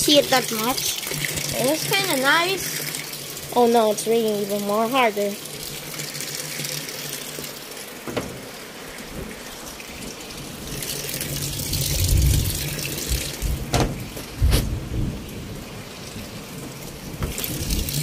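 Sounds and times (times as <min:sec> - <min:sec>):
water splashing into washing machine: 0:00.0 - 0:18.0
deep rumbles: 0:11.8 - 0:15.6.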